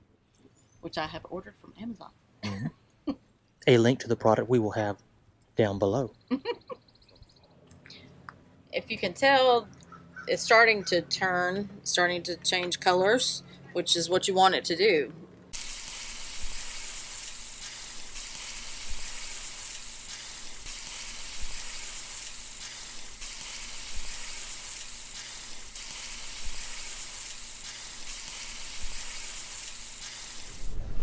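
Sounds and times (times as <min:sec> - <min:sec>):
oil sizzling on a hot griddle: 0:15.5 - 0:30.8.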